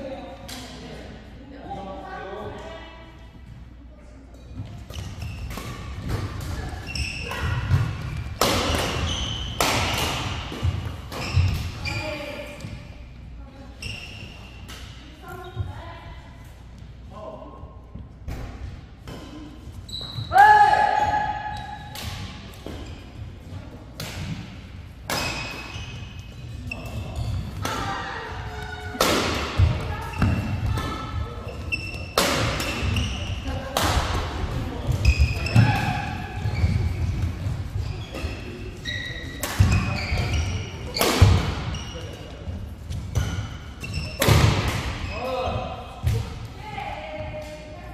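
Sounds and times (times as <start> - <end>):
shoes squeaking on court: 4.3 - 9.6, 10.4 - 13.1, 13.7 - 14.7, 19.7 - 20.4, 25.2 - 27.6, 29.6 - 33.5, 34.7 - 44.3.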